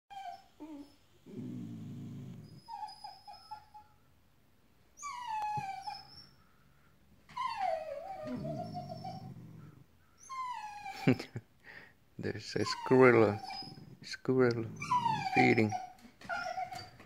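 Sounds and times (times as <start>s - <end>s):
dogs whining: 0.1s - 4.0s, 5.0s - 6.4s, 7.3s - 11.3s, 12.5s - 17.0s
low grumbling: 8.2s - 9.9s, 12.8s - 15.7s.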